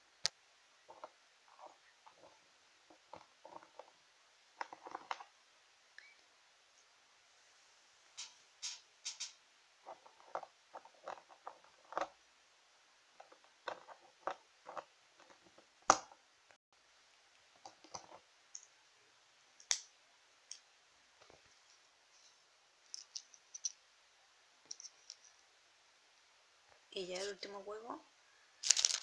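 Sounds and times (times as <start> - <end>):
plastic toy pieces clicking: 28.6 - 29.0.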